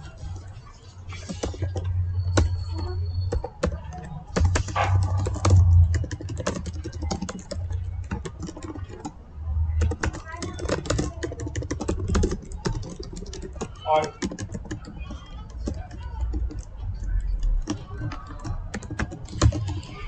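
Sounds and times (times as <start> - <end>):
computer keyboard typing: 0.0 - 20.0
low hum: 4.8 - 6.3.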